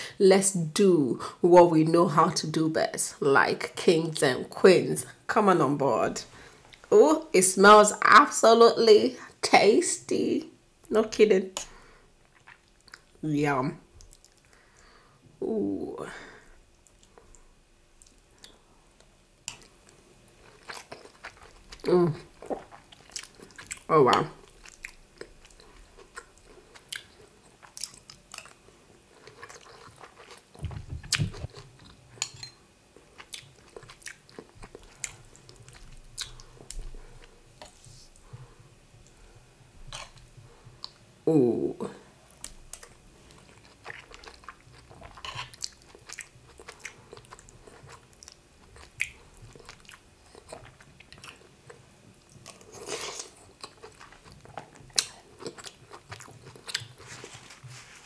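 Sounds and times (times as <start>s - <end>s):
person chewing: 12.2s - 13.2s, 14.0s - 14.9s, 16.8s - 32.4s, 33.0s - 39.2s, 42.3s - 58.0s.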